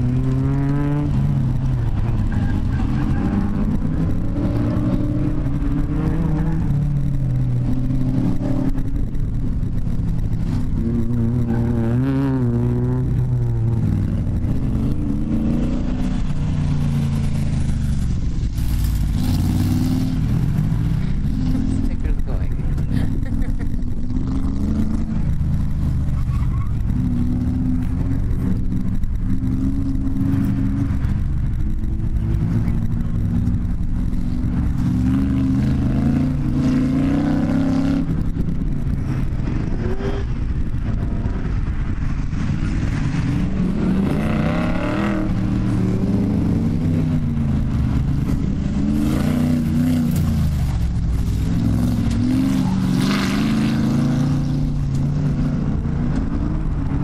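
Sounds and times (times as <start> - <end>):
car engine revving hard: 43.1 - 56.4.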